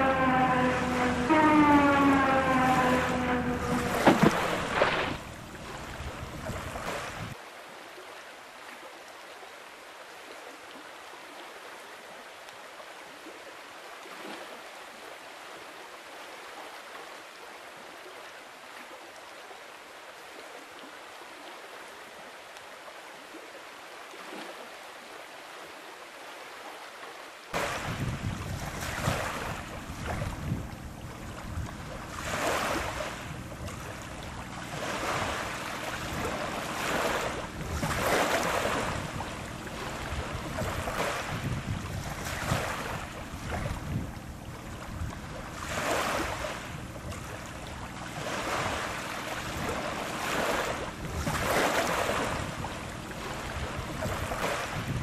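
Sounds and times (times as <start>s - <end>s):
hiss of wind and water: 0.0s - 55.0s
wind buffeting the microphone: 3.4s - 7.4s, 27.6s - 35.4s, 36.0s - 46.0s, 49.4s - 55.0s.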